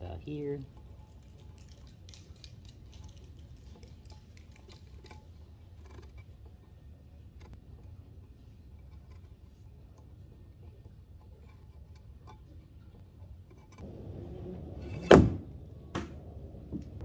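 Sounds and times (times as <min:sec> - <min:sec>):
low steady hum: 0:00.0 - 0:17.0
cord clicking and rustling: 0:00.7 - 0:06.3.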